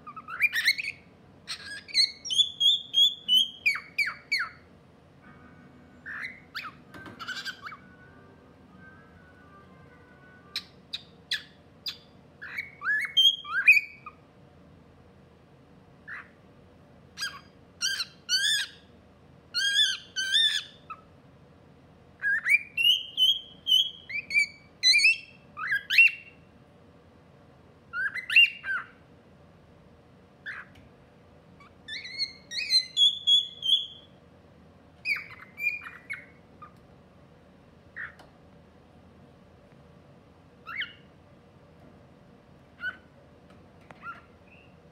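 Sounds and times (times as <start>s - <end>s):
cockatiel chirping and whistling: 0.0s - 4.7s, 6.0s - 8.0s, 10.4s - 14.2s, 16.0s - 16.4s, 17.2s - 18.9s, 19.5s - 21.1s, 22.2s - 26.4s, 27.9s - 29.0s, 30.4s - 30.7s, 31.6s - 34.1s, 35.0s - 36.8s, 38.0s - 38.2s, 40.6s - 41.1s, 42.8s - 43.1s, 43.9s - 44.8s.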